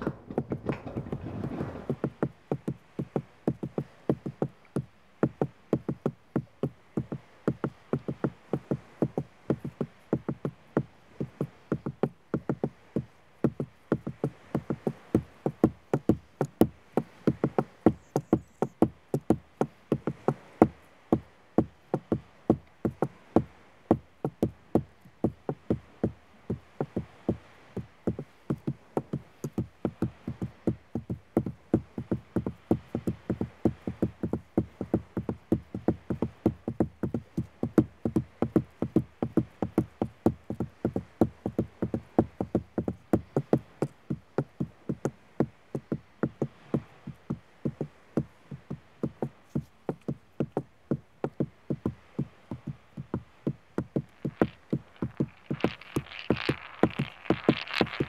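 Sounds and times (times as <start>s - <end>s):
pebbles knocking on hollow wood: 0.0s - 20.5s, 51.3s - 58.0s.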